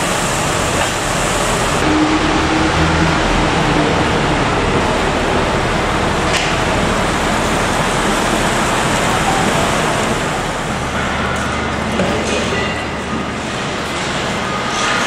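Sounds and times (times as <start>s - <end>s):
tyres hissing on wet road: 0.0s - 10.9s.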